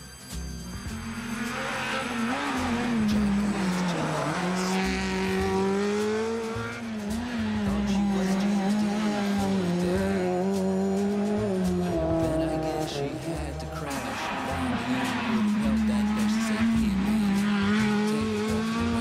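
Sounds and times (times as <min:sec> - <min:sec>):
rally car engines at high revs: 0:00.6 - 0:19.0.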